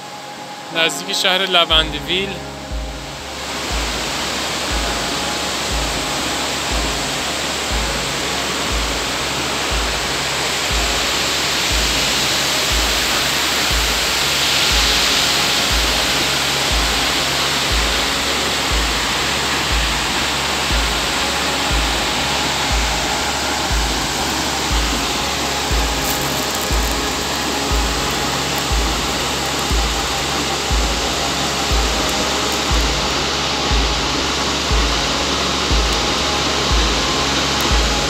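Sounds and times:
background music with low beat: 0:00.0 - 0:38.0
waterfall roaring: 0:00.0 - 0:38.0.

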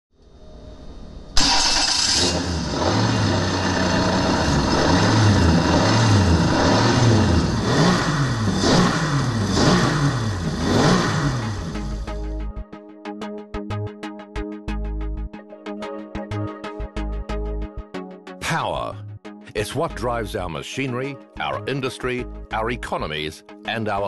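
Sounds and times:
engine revving: 0:01.4 - 0:12.4.

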